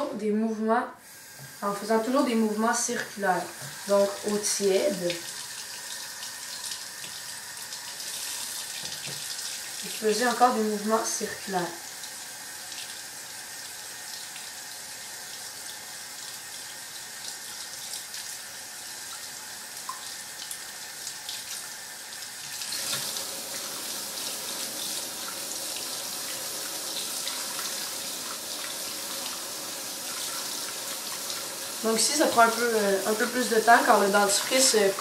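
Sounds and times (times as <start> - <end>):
tap water splashing: 1.3 - 1.6, 2.9 - 9.7, 19.1 - 21.7, 22.4 - 23.7.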